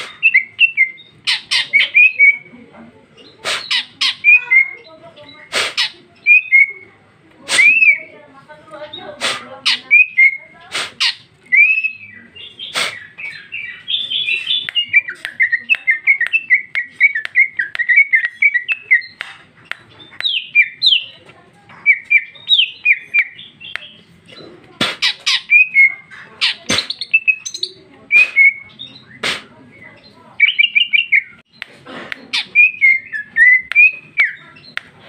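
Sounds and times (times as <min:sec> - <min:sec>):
bird singing chirps and warbles: 0:00.0 - 0:07.0, 0:07.6 - 0:31.7, 0:32.3 - 0:35.0
sharp loud bird clicks: 0:12.6 - 0:21.1, 0:21.7 - 0:29.6, 0:30.4 - 0:35.0.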